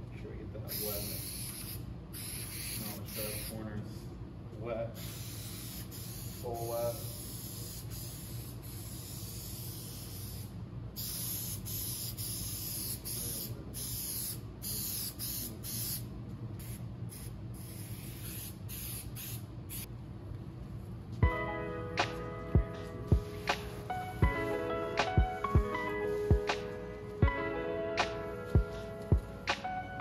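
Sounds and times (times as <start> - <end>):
aerosol spray can hissing: 0.7 - 3.6, 5.0 - 16.0, 16.6 - 19.9.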